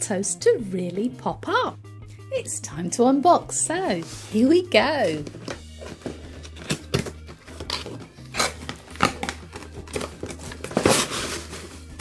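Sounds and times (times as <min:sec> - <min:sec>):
tape tearing: 0:05.4 - 0:12.0
cardboard box being opened: 0:05.7 - 0:12.0.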